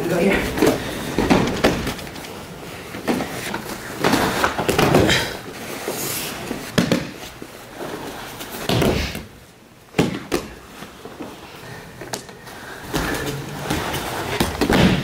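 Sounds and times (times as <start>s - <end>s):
bodies thudding on mat: 0.6s - 2.2s, 8.6s - 9.3s, 12.9s - 15.0s.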